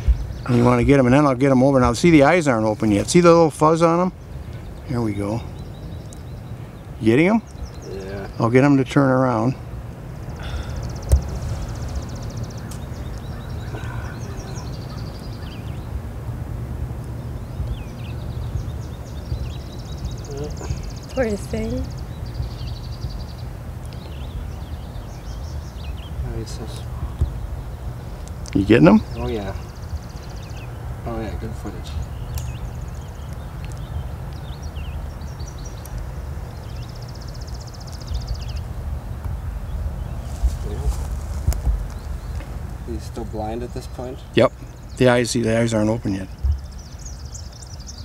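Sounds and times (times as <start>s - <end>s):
low rumble on microphone: 0.0s - 8.8s, 9.5s - 45.2s, 45.9s - 48.0s
songbirds whistling: 0.0s - 16.1s, 16.9s - 48.0s
high bird trill: 0.0s - 41.2s
small birds chirping: 0.0s - 48.0s
bird trilling: 2.0s - 16.0s.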